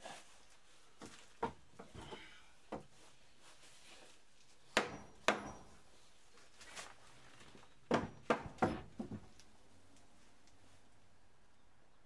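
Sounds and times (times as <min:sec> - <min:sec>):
hammer knocking on wood: 0:04.8 - 0:05.8, 0:07.9 - 0:09.3.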